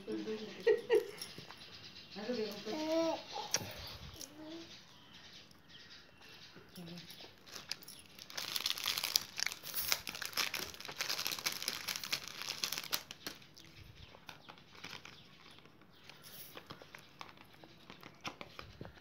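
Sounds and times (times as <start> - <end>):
plastic wrapper crinkling: 7.4 - 13.6, 14.2 - 19.0.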